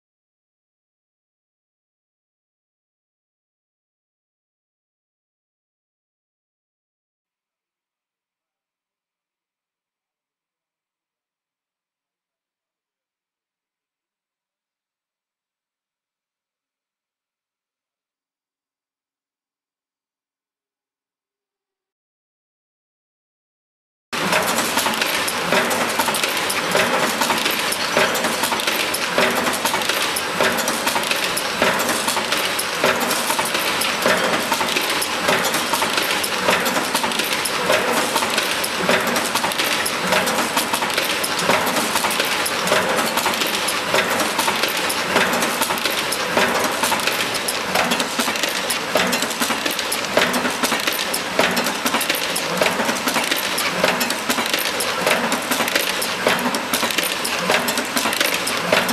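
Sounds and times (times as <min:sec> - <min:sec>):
machine clattering with metallic clicks: 0:24.2 - 0:58.9.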